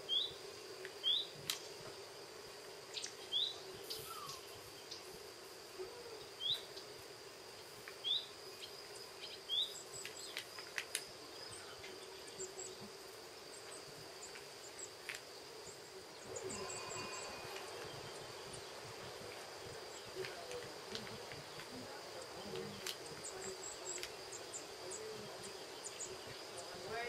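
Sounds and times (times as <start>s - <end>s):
bird chirping: 0.0s - 1.4s, 2.9s - 5.1s, 7.6s - 10.5s, 15.6s - 27.0s.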